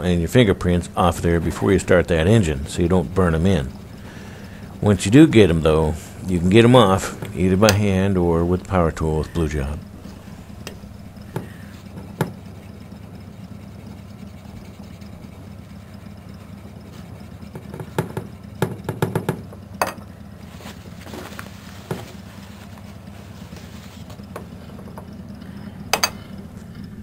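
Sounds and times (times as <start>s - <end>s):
steady low hum: 0.0s - 27.0s
cloth rubbing on metal pipe: 0.4s - 18.0s, 20.3s - 25.0s
knocks and taps: 10.6s - 12.4s, 17.5s - 20.0s.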